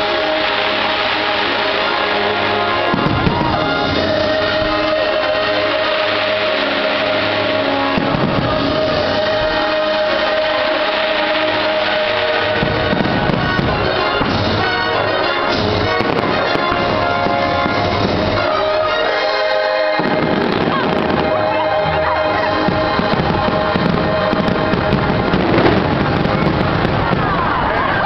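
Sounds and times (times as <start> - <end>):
fireworks bursting: 0.0 - 28.0
music playing loudly: 0.0 - 28.0.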